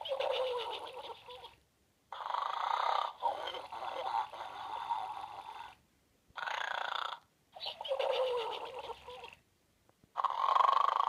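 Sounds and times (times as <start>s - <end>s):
toy playing recorded snoring: 2.1s - 5.8s, 6.4s - 9.4s, 10.2s - 11.0s.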